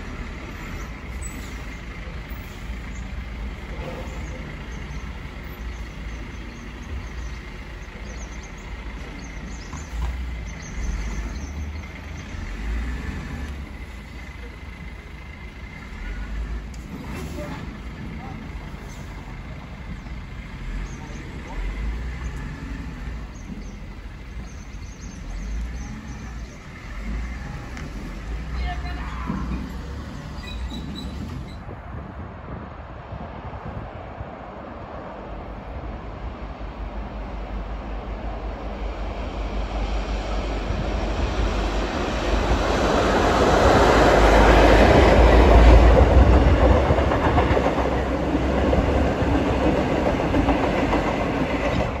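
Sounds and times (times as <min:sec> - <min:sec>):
diesel truck engine rumbling: 0:00.0 - 0:32.7, 0:33.4 - 0:52.0
train wheels rolling on rails: 0:00.0 - 0:52.0
small birds chirping: 0:00.7 - 0:12.8, 0:18.2 - 0:27.4.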